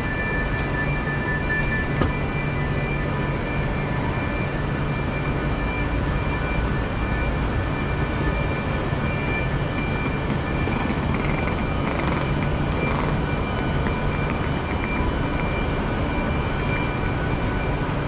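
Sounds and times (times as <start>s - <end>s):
high steady whine: 0.0s - 18.0s
trains humming and rumbling: 8.4s - 18.0s.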